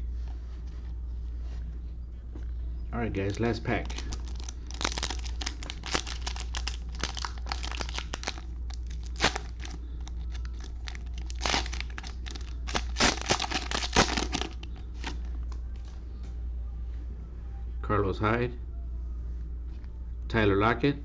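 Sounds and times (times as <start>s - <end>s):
plastic wrapper crinkling and tearing: 3.7s - 15.3s.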